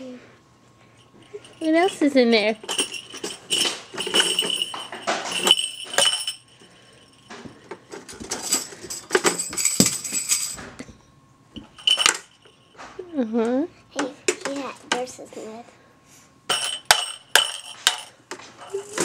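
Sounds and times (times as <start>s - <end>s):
toy instruments jingling: 1.1s - 7.4s, 8.2s - 10.6s, 11.7s - 12.7s, 16.5s - 19.0s.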